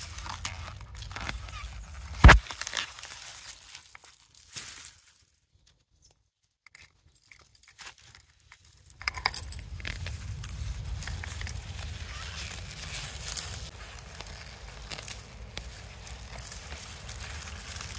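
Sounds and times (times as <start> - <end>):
leaves rustling and crinkling: 0.0 - 6.2, 7.0 - 17.9
low rumble: 9.0 - 14.7.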